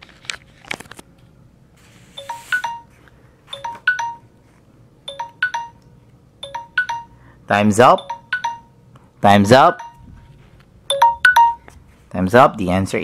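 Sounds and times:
electronic timer chime jingle: 2.2s - 4.3s, 5.1s - 5.8s, 6.4s - 7.2s, 7.8s - 10.2s, 10.9s - 11.6s.

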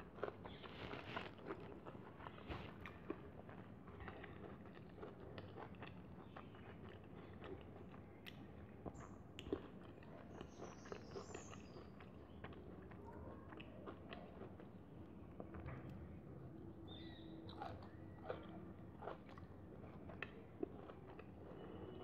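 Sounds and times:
fingers mixing rice on a plate: 0.0s - 14.7s
chewing: 0.0s - 16.1s, 16.9s - 22.0s.

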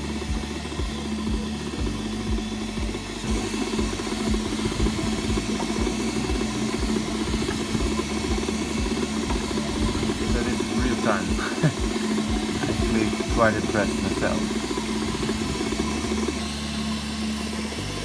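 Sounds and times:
cooling fans humming: 0.0s - 18.0s
stepper motors whirring: 0.0s - 18.0s.

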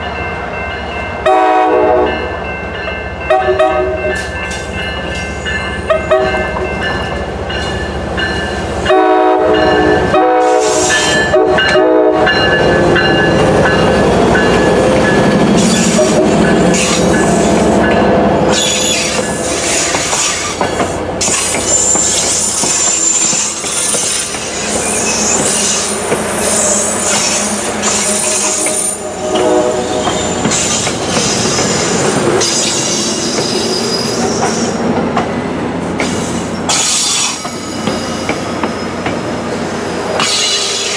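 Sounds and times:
crossing bell ringing: 0.0s - 20.0s
diesel locomotive horn blasts: 1.2s - 2.3s, 3.3s - 4.1s, 5.9s - 6.6s, 8.8s - 12.5s, 26.4s - 30.6s
train wheels squealing and clattering: 10.5s - 34.8s, 36.0s - 39.3s, 40.2s - 40.9s.

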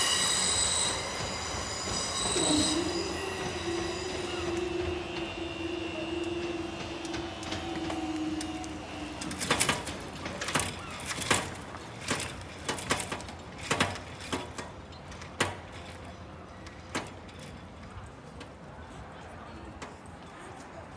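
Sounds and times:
train wheels squealing: 0.0s - 11.6s.

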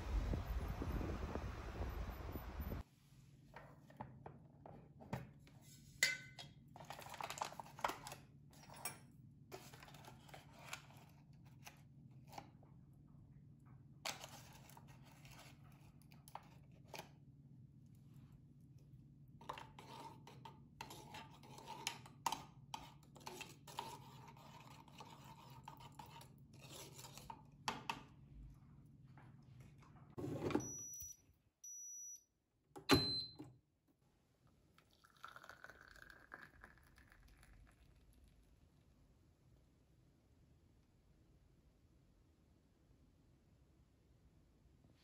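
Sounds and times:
metal spoon clinking and scraping: 19.5s - 27.5s.

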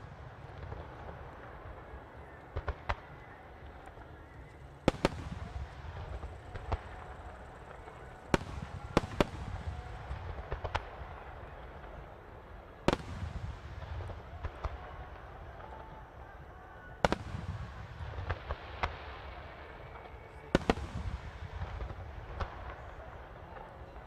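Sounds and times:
fireworks bursting with sharp bangs: 0.0s - 24.0s.

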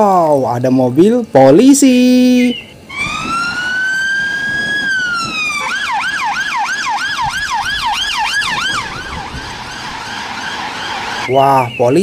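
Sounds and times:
police siren wailing and yelping: 2.8s - 11.4s.

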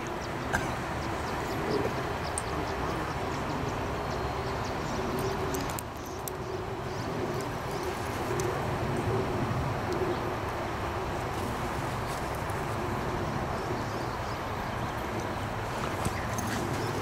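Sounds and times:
bird cooing: 0.0s - 3.9s
outdoor background noise: 0.0s - 17.0s.

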